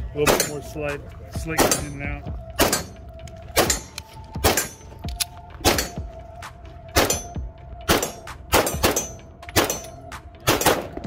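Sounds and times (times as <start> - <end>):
pistol shots: 0.2 - 0.7, 1.6 - 4.9, 5.6 - 6.0, 6.9 - 11.0.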